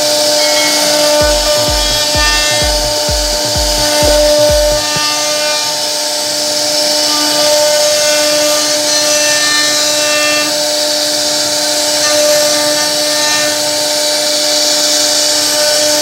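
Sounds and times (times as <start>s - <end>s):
router spindle cutting wood: 0.0s - 16.0s
low repeating thud: 1.2s - 5.1s.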